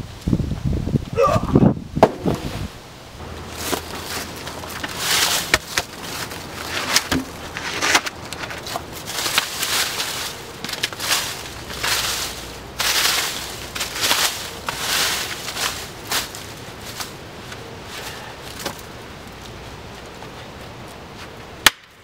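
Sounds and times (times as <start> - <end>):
dry leaves crunching and rustling: 2.4 - 21.4
sticks cracking: 3.4 - 17.6, 21.6 - 22.0.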